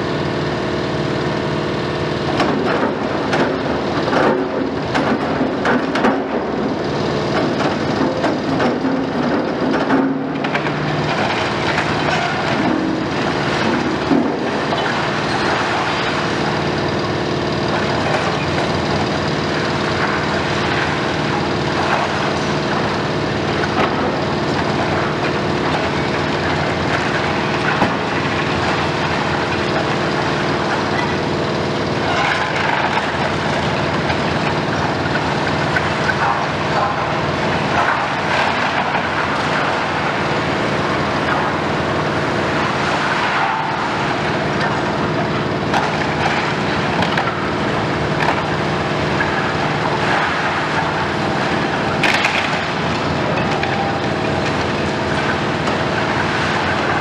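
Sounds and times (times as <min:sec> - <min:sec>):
excavator diesel engine running: 0:00.0 - 0:57.0
masonry crunching and falling: 0:07.2 - 0:16.9, 0:19.5 - 0:57.0.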